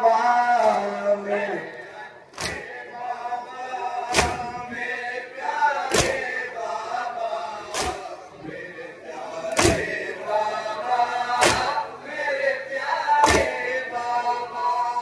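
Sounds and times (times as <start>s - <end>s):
men chanting in unison: 0.0s - 15.0s
collective chest-beating strikes: 4.1s - 4.6s, 11.4s - 11.8s.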